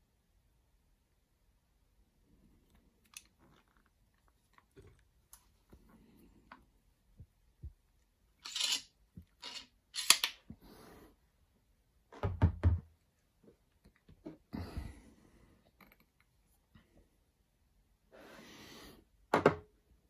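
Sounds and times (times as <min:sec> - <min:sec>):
metal parts clicking: 0:08.4 - 0:10.4.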